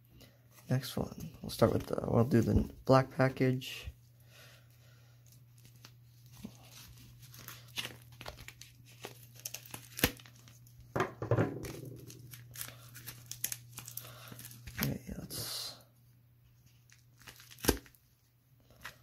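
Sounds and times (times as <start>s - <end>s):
plastic crinkling and rustling: 5.2s - 10.9s, 11.6s - 15.0s
plastic mailer being cut and torn: 7.5s - 10.4s, 17.2s - 18.0s.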